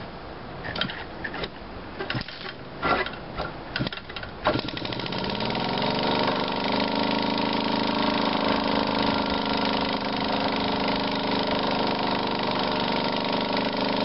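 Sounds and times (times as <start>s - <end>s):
electric starter motor whine: 3.8s - 14.0s.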